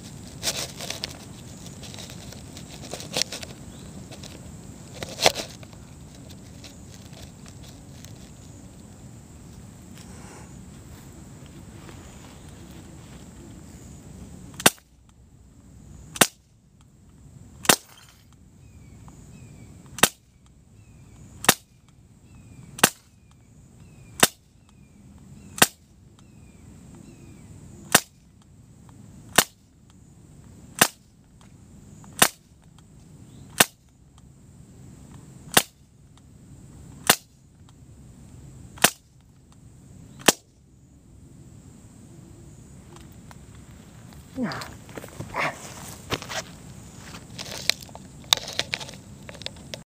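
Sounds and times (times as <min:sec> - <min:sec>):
air pistol shots: 0:21.4 - 0:21.7.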